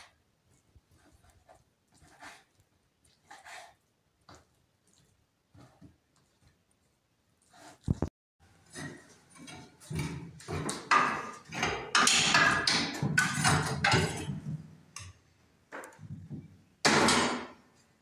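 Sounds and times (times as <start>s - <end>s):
irregular knocks and clatter: 8.6s - 17.6s.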